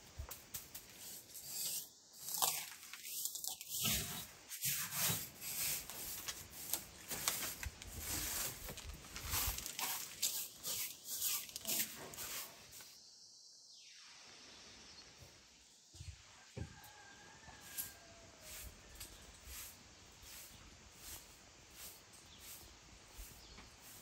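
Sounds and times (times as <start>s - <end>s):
broom sweeping wooden floor: 0.2s - 13.0s, 16.0s - 24.0s.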